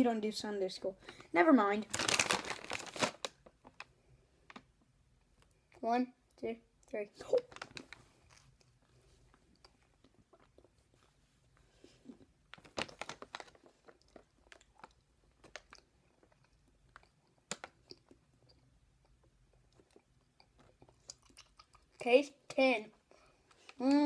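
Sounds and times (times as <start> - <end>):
faint chewing: 7.4 - 22.0
mouth clicks and smacks: 13.6 - 22.1.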